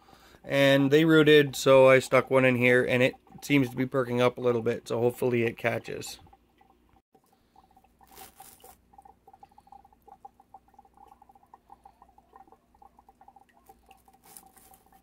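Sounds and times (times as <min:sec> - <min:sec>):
water bubbling and dripping: 0:00.8 - 0:15.0
handling rustle: 0:08.0 - 0:08.8, 0:13.8 - 0:15.0.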